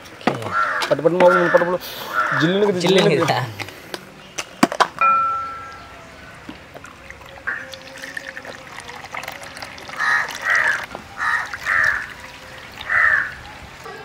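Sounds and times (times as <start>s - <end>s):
crow cawing: 0.5s - 2.6s, 7.4s - 8.0s, 9.9s - 12.2s, 12.8s - 14.0s.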